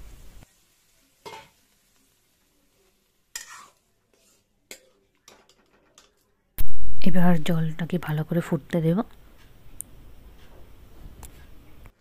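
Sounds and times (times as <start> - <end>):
faint sizzle: 0.0 - 12.0
spatula scraping metal pan: 3.3 - 6.1.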